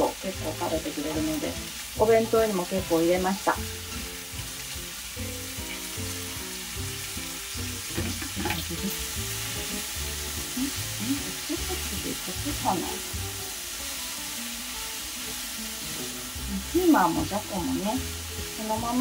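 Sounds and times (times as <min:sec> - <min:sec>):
food sizzling in a frying pan: 0:00.0 - 0:19.0.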